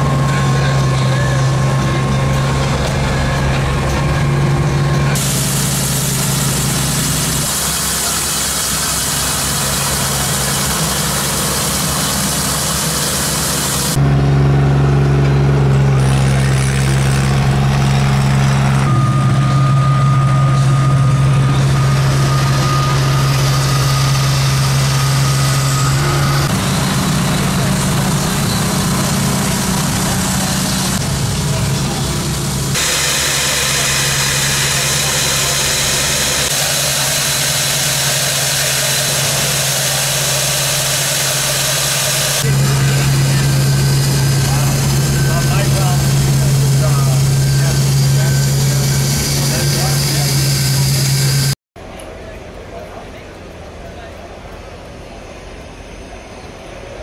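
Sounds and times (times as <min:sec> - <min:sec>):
construction machinery hum: 0:00.0 - 0:57.0.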